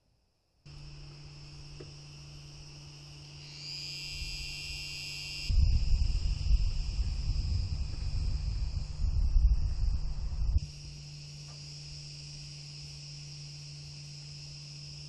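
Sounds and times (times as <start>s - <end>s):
cicadas chorus: 0.7s - 15.0s
uneven low rumble: 5.5s - 10.8s
low hum: 5.5s - 15.0s.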